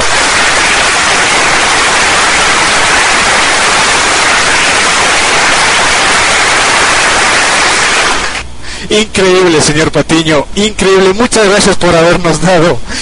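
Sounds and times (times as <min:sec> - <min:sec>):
loud dense applause: 0:00.0 - 0:08.4.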